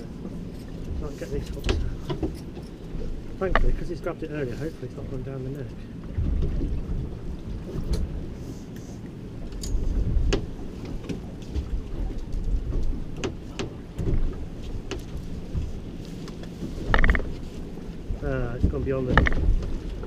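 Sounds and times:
fishing tackle clicking and knocking: 3.4s - 3.8s, 16.4s - 17.3s, 19.1s - 19.5s
wind buffeting microphone: 9.3s - 20.0s.

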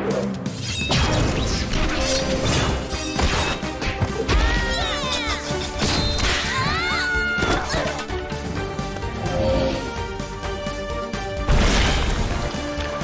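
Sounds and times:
dramatic music score: 0.0s - 13.0s.

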